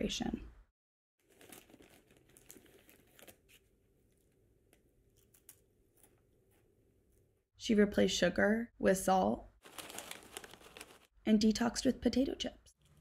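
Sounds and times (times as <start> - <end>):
chip bag crinkling: 1.2 - 4.4, 9.6 - 11.2.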